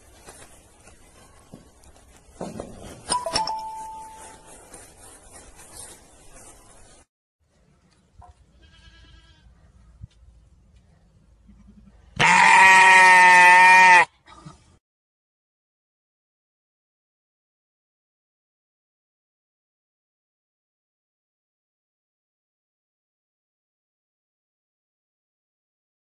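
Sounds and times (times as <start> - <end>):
sheep bleating: 8.5 - 9.5, 11.5 - 14.2.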